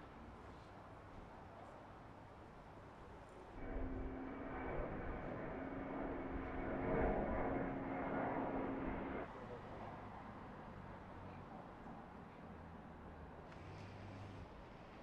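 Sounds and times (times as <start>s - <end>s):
jet airliner engine drone: 3.5s - 9.6s
held humming tone: 3.6s - 9.3s.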